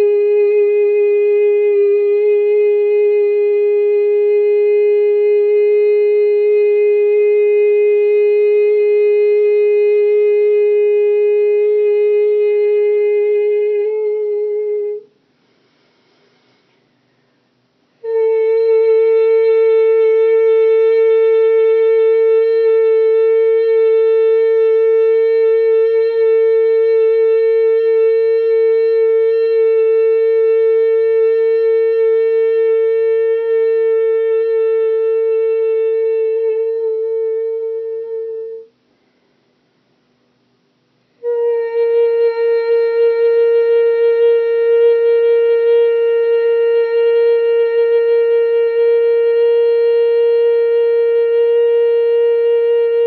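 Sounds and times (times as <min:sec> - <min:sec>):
person singing a long note: 0:00.0 - 0:15.1, 0:18.0 - 0:38.7, 0:41.2 - 0:53.0.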